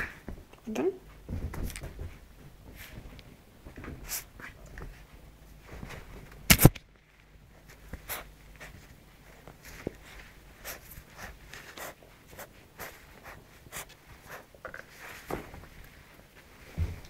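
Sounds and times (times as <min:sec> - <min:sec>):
puppy scratching and rustling: 0:07.0 - 0:16.7.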